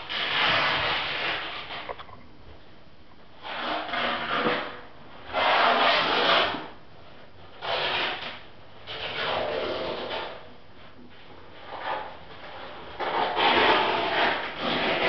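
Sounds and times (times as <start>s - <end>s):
rough scraping strokes: 0.0s - 2.0s, 11.5s - 15.0s.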